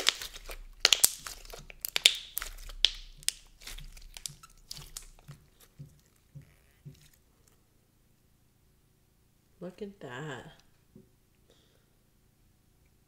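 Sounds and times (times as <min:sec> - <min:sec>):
slime crackling and popping: 0:00.0 - 0:07.2.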